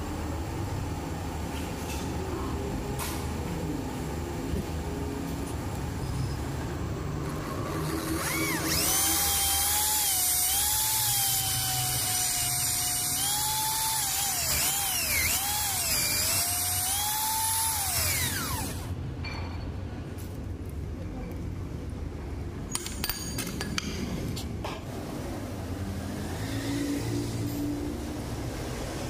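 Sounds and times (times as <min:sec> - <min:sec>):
electric drill drilling into metal: 0:07.7 - 0:18.9.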